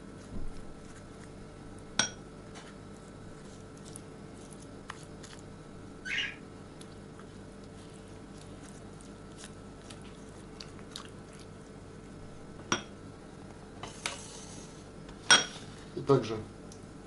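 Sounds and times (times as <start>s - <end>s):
faint steady hum: 0.0s - 17.0s
brush dabbing sauce: 0.1s - 1.6s, 2.6s - 5.6s, 6.8s - 11.7s
brush scraping: 2.5s - 5.5s, 7.2s - 10.8s.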